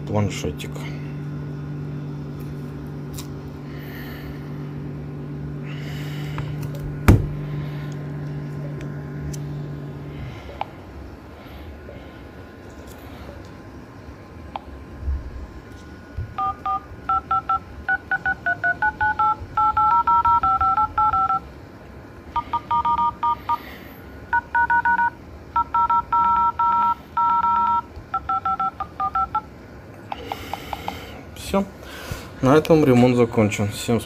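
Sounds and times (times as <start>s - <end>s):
touch-tone dialer beeps: 16.4s - 21.4s, 22.4s - 23.6s, 24.3s - 29.5s.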